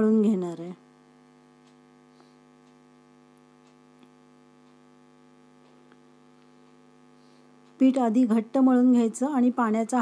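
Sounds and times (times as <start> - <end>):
steady electrical hum: 0.0 - 10.0
faint ticks: 1.4 - 7.0, 7.6 - 8.0.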